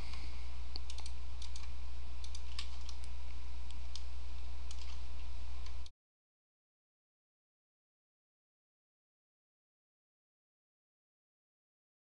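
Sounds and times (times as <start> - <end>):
low electrical hum: 0.0 - 5.9
computer mouse and keyboard clicks: 0.8 - 3.2, 4.7 - 5.0.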